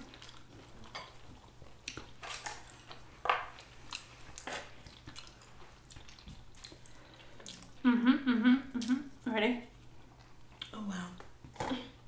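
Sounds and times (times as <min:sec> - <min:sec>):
wet chewing and mouth smacks: 0:00.0 - 0:07.8.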